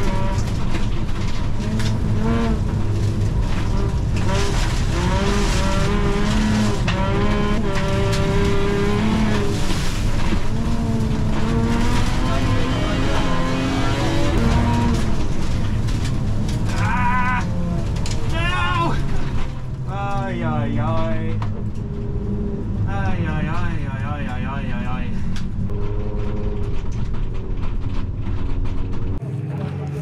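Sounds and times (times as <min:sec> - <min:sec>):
race car engine revving: 0:00.0 - 0:16.8
tyre and road noise: 0:00.0 - 0:30.0.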